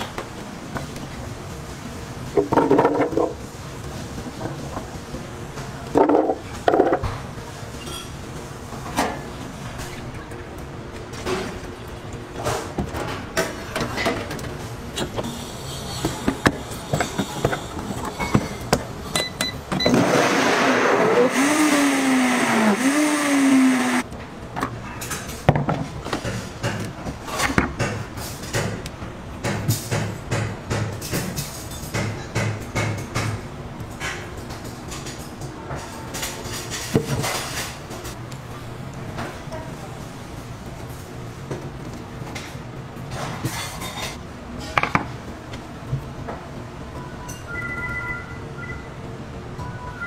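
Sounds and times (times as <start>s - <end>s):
blender running: 19.9s - 24.0s.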